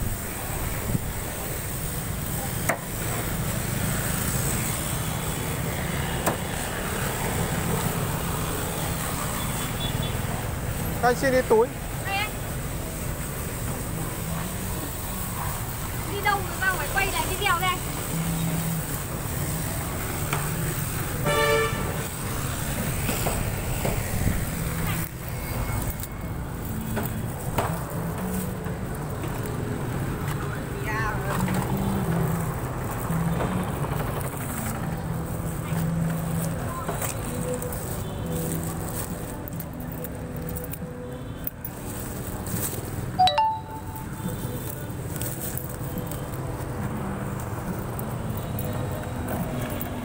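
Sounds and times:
motorbikes passing: 0.0 - 50.0
street traffic rumble: 0.0 - 50.0
vehicle horn honk: 21.2 - 21.9.

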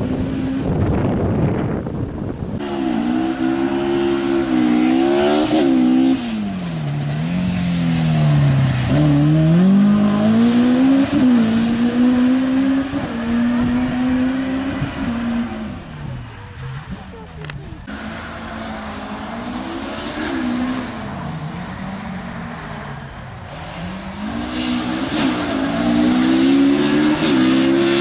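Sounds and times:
rally car engine revving: 0.0 - 28.0.

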